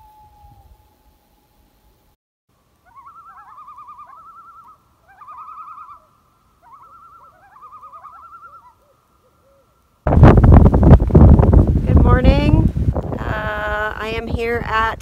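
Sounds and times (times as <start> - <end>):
quavering bird-like warble: 2.8 - 9.8.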